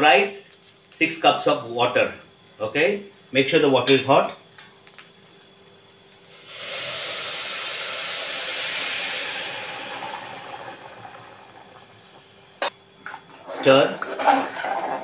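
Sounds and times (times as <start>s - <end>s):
water pouring into a pot: 6.3s - 12.6s.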